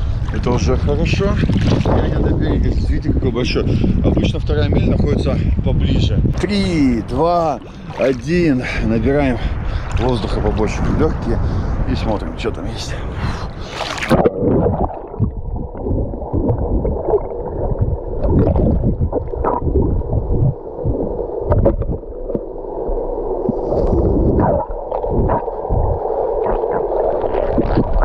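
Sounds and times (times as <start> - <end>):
muffled underwater water wash: 0.0 - 28.0
diver bubbling: 6.3 - 10.1, 13.1 - 28.0.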